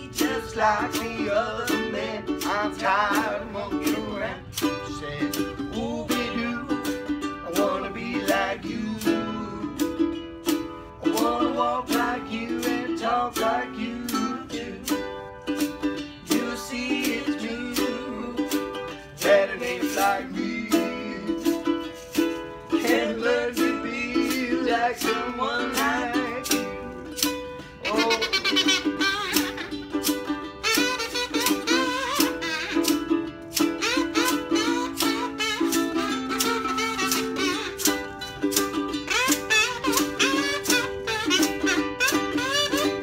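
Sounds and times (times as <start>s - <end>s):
man and woman scat singing: 0.0s - 9.8s, 22.7s - 26.9s, 27.7s - 29.8s
ukulele strumming: 0.0s - 43.0s
buzzy kazoo: 27.7s - 38.2s, 39.0s - 43.0s.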